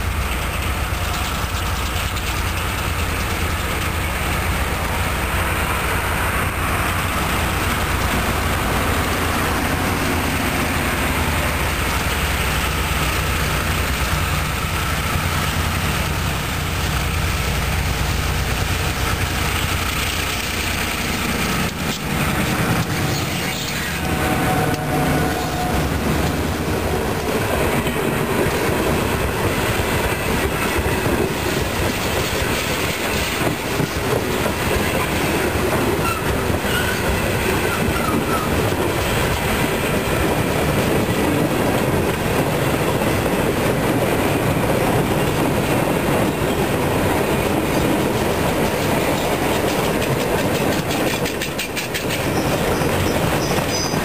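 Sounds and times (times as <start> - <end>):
diesel locomotive engine: 0.0 - 54.0
freight cars rolling on rails: 0.0 - 54.0
wheels clacking over rail joints: 0.0 - 54.0.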